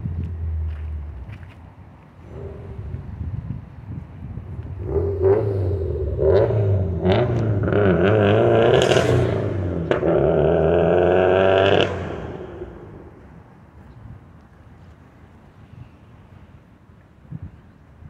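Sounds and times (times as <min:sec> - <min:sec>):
engine running: 0:00.0 - 0:03.4, 0:04.4 - 0:13.6.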